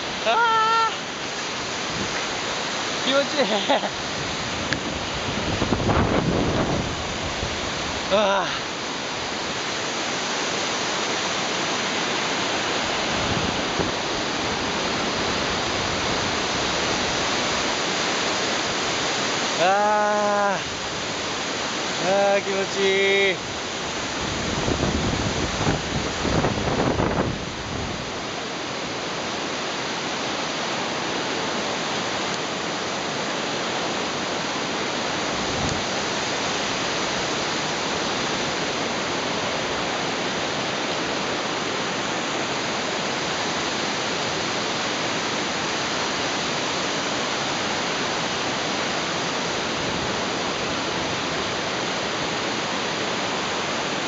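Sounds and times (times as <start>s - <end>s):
river rapids rushing: 0.0s - 54.0s
wind buffeting microphone: 4.0s - 8.1s, 24.0s - 28.1s.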